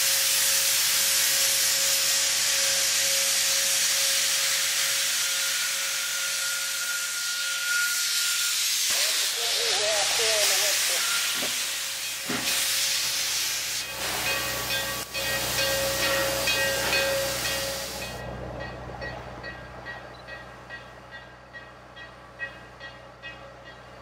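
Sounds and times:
steam locomotive venting steam: 0.0 - 18.2
train with light regular clicking: 0.0 - 24.0.

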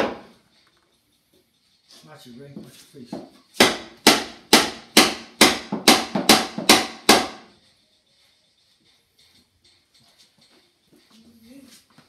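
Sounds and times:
hammer striking wooden cabinet: 0.0 - 0.2, 3.2 - 7.5.

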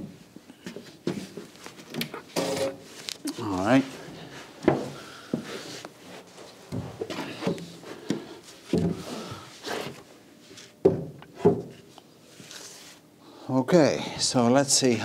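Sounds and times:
wooden beam knocks and thunks: 8.7 - 9.0, 10.8 - 11.8.

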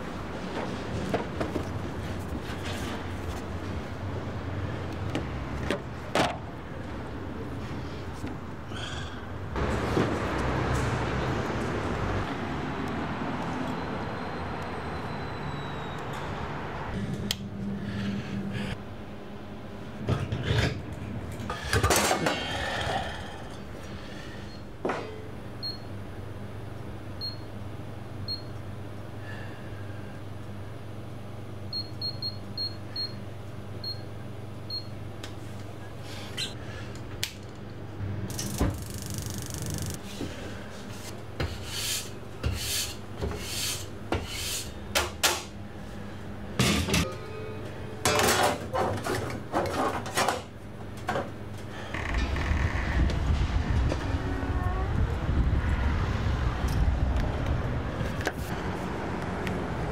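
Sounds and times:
low machine hum: 16.8 - 43.3.

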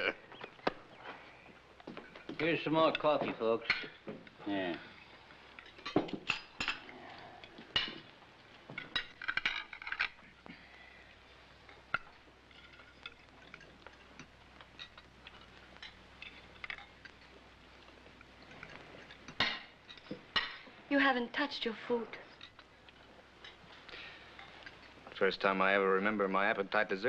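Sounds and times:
cutlery clinking on plates: 5.5 - 6.9, 18.4 - 20.7.

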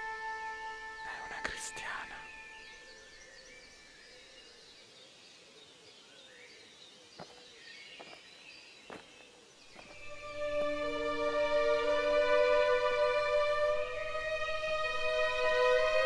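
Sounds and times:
small birds chirping: 0.8 - 10.2.

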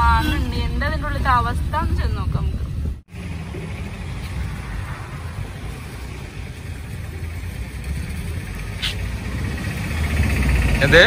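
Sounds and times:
vehicle engine idling: 3.1 - 11.0.

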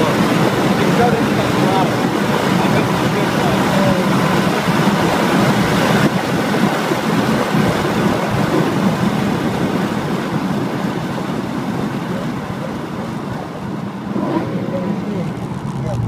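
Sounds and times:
car cabin noise at speed: 0.0 - 16.0.

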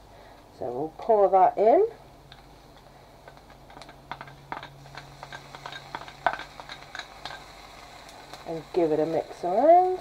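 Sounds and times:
low steady hum: 0.0 - 10.0
sauce clicking and popping in pan: 2.3 - 8.8.

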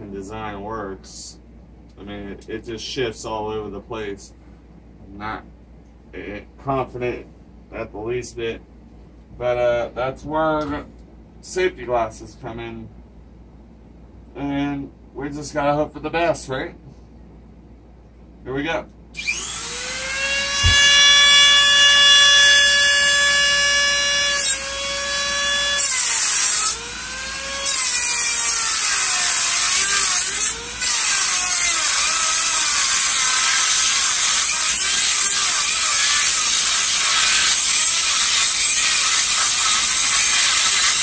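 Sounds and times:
cut-off wheel grinding metal: 19.2 - 41.0
rotary tool whining: 19.2 - 41.0.

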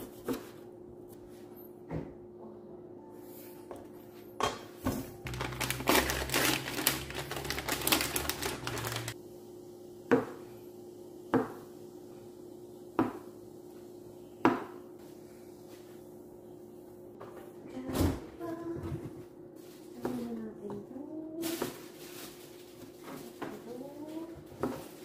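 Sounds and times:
plastic packet crinkling and tearing: 5.3 - 9.2.

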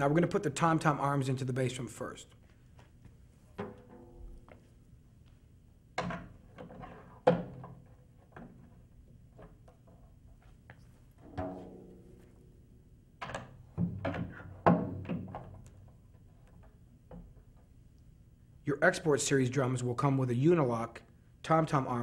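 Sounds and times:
drum shell ringing: 11.2 - 13.7.

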